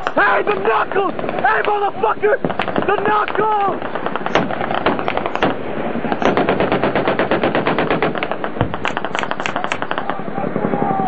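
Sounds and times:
heavy deep gunshot: 3.8 - 10.2
automatic gunfire: 3.8 - 10.3.

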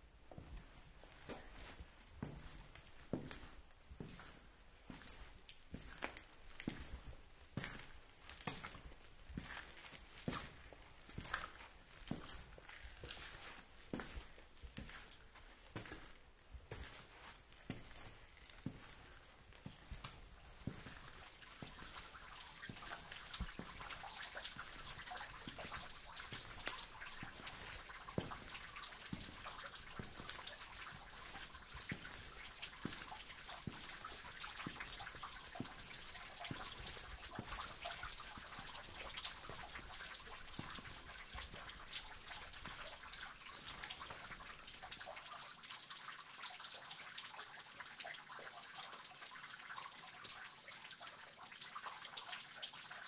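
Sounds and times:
water drops dripping: 4.9 - 16.1, 16.8 - 53.0
water trickling: 16.8 - 53.0.

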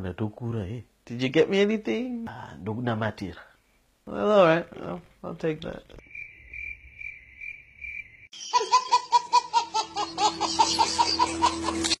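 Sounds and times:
cricket chirping: 6.0 - 8.4
rhythmic laughter: 8.4 - 12.0.

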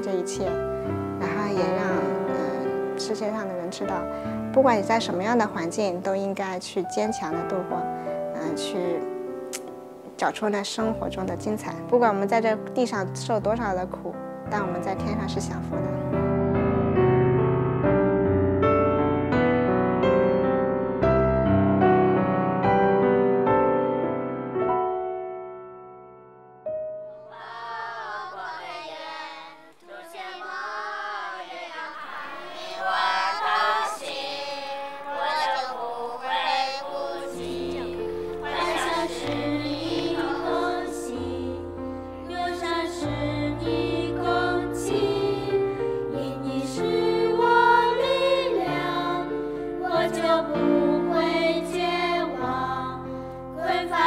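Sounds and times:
piano chord: 0.0 - 27.4, 36.3 - 47.9
voices singing together: 27.3 - 54.0.

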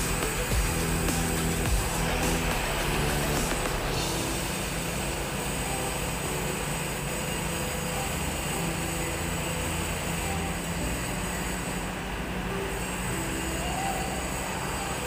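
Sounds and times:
hiss: 0.0 - 8.6
machinery drone: 0.0 - 15.0.

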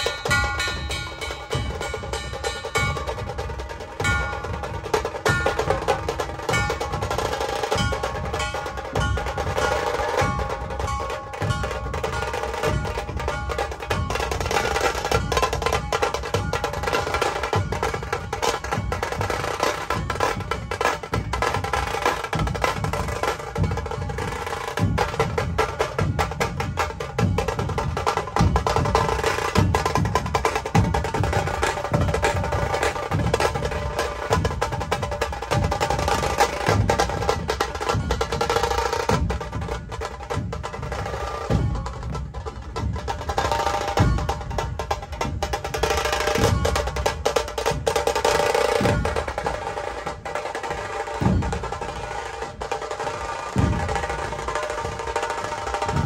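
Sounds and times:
drum-led music: 0.0 - 56.0.

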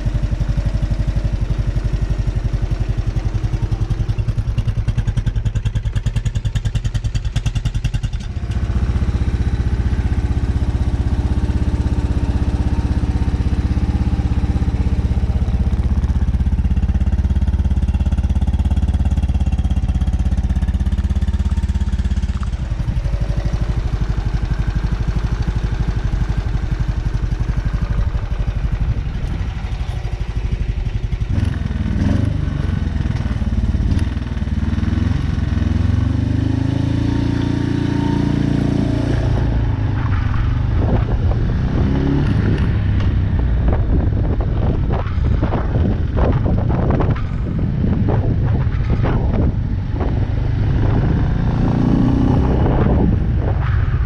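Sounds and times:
motorcycle engine idling and revving: 0.0 - 54.0
wind noise on microphone: 24.7 - 36.6, 37.7 - 54.0.

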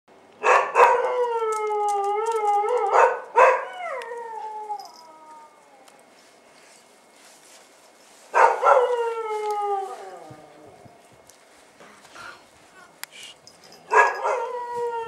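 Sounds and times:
dog yelping: 8.4 - 9.5, 13.9 - 14.6.

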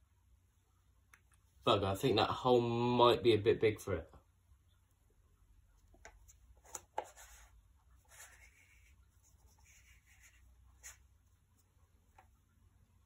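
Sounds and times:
faint scratchy rustling: 5.7 - 12.5.

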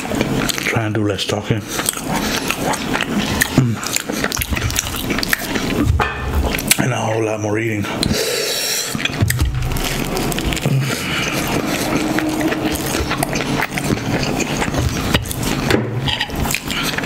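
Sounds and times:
man chewing food: 0.0 - 7.2, 7.8 - 17.0
wet mouth clicks: 1.8 - 5.9, 8.8 - 17.0.

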